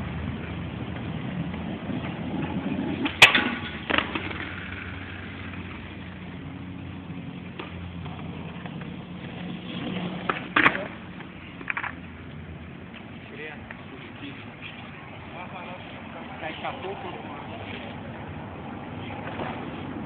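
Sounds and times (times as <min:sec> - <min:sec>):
skateboard wheels rumbling on pavement: 0:00.0 - 0:20.0
skateboard clacks: 0:00.8 - 0:05.8, 0:07.4 - 0:13.9.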